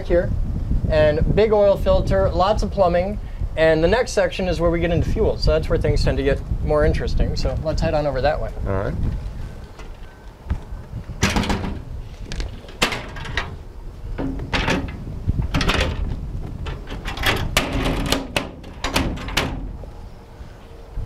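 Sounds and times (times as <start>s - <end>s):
metal door clanking and rattling: 11.2s - 19.8s.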